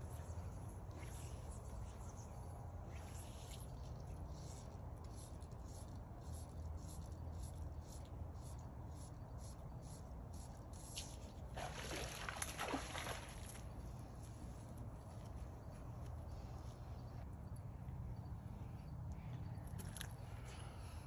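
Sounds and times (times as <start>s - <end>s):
steady low hum: 0.0s - 21.0s
water splashing and sloshing: 11.2s - 13.9s.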